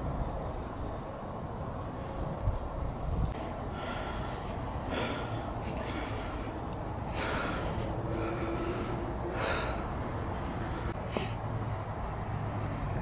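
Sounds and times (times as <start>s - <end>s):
low steady rumble: 0.0s - 13.0s
hissing breaths close to microphone: 3.3s - 11.4s.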